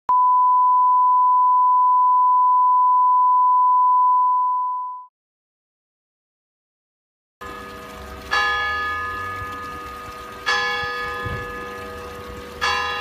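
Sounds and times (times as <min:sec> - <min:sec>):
sine reference tone: 0:00.1 - 0:05.1.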